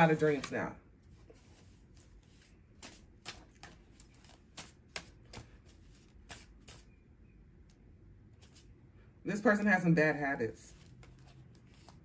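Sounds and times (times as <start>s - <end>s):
cards being shuffled: 0.0s - 6.9s, 10.7s - 12.0s.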